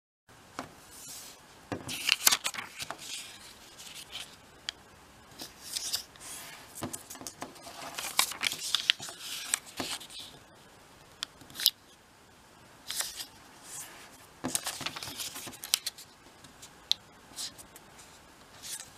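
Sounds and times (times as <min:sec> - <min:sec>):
paper crackling as folded: 0:00.9 - 0:04.4, 0:05.4 - 0:10.4, 0:12.9 - 0:16.8, 0:17.4 - 0:18.9.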